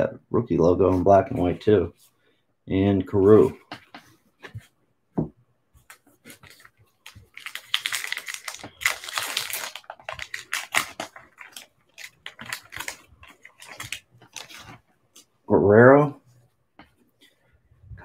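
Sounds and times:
wrapper being torn and crinkled: 6.3 - 14.8.

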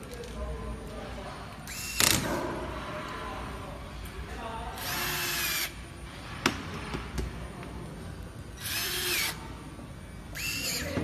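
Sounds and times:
cordless drill whining: 8.6 - 9.4, 10.4 - 11.0.

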